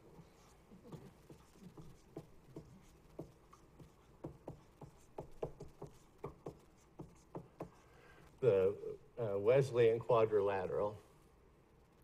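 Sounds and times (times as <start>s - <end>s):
marker scratching on whiteboard: 0.1s - 7.9s.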